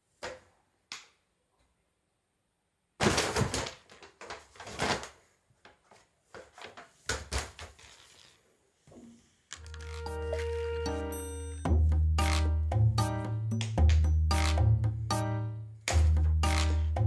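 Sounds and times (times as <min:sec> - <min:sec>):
paper bag crackling and rustling: 0:03.0 - 0:05.4.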